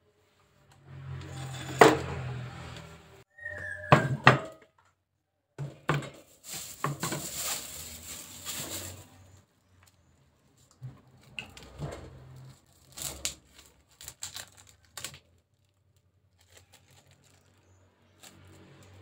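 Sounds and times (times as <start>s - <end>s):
plastic wrap crinkling: 6.2s - 9.4s, 12.6s - 18.8s.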